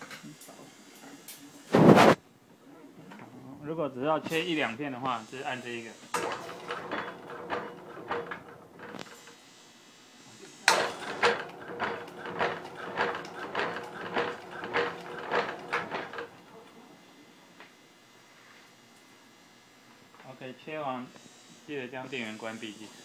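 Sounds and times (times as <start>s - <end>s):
slicer carriage mechanical strokes: 5.3s - 9.3s, 10.6s - 16.4s
steady motor hum: 5.6s - 9.3s, 10.6s - 17.0s.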